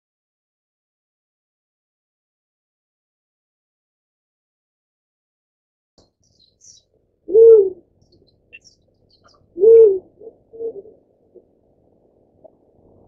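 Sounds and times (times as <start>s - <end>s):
faint high bird chirps: 6.0s - 10.8s
dove cooing: 6.7s - 7.9s, 8.5s - 11.5s.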